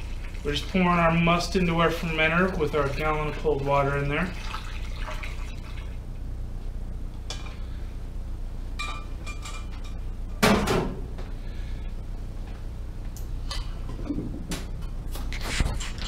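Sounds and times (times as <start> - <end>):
low hum: 4.7 - 16.0.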